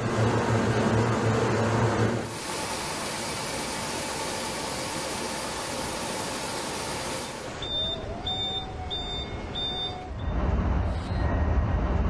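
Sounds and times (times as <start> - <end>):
low factory hum: 0.0 - 12.0
electronic warning beeper: 7.6 - 10.3.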